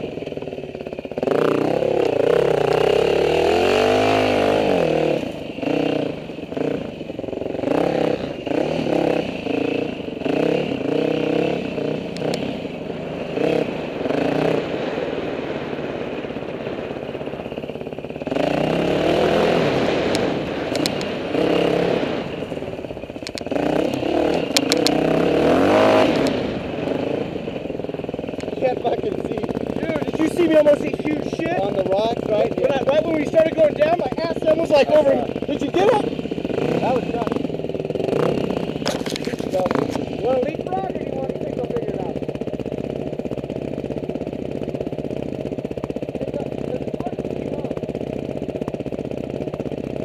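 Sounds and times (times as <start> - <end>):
dirt bike engine revving: 0.0 - 50.0
bike rattling over rocky ground: 38.8 - 40.8.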